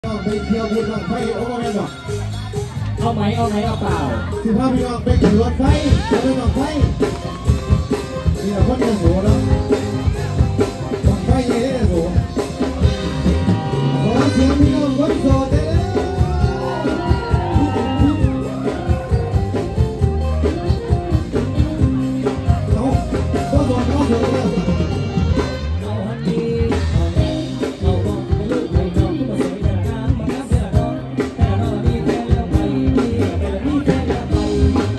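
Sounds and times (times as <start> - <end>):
man singing into microphone: 0.0 - 2.4, 3.0 - 7.1, 13.6 - 19.4, 22.7 - 34.9
upbeat music with drum beat: 0.0 - 34.9.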